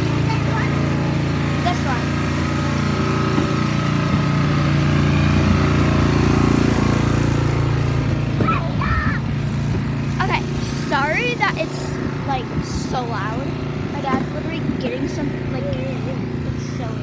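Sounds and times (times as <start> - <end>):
snow blower engine running: 0.0 - 17.0.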